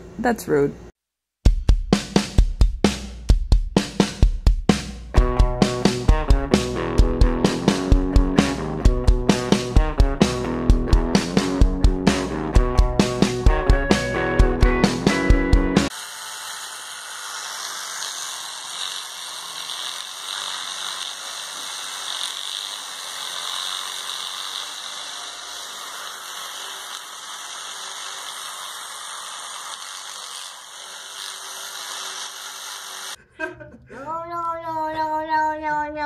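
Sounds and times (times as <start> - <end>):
electric toothbrush buzzing: 12.8 - 33.2.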